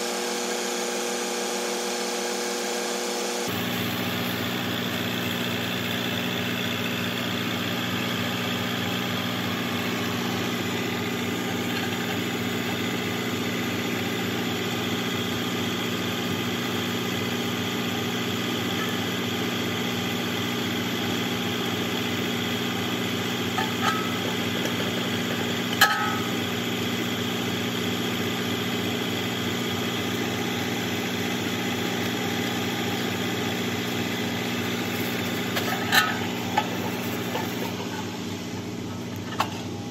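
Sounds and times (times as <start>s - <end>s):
tractor engine idling: 3.5s - 39.9s.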